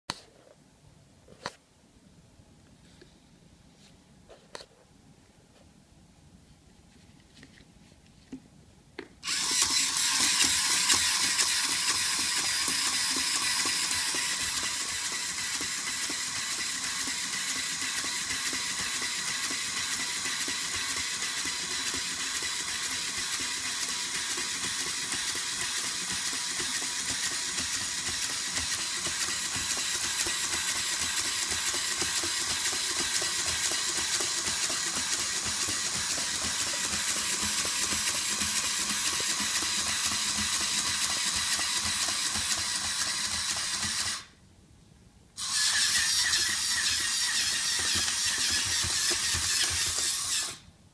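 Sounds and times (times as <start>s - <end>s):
robot motors whirring and clattering: 9.2s - 44.3s, 45.4s - 50.6s.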